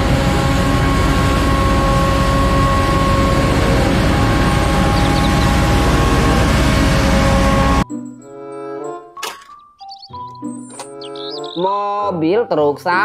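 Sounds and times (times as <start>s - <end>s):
street sweeper engine running: 0.0s - 7.8s.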